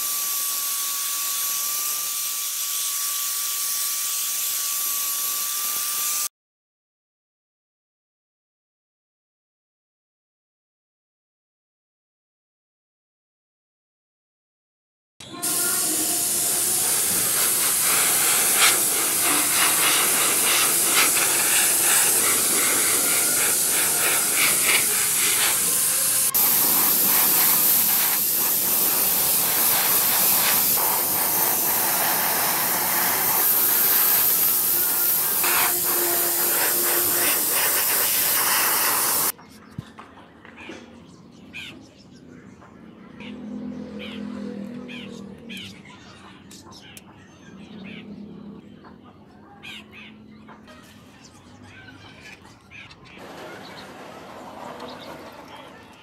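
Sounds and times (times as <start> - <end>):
paint spray gun hissing: 0.0 - 2.4, 15.4 - 39.3.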